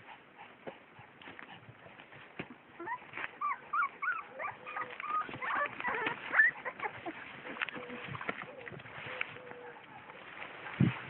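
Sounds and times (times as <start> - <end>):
puppies whimpering and squealing: 2.6 - 10.6.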